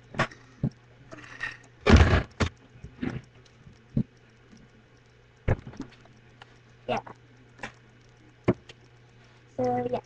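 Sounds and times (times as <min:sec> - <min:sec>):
heavy thud: 0:01.9 - 0:02.5.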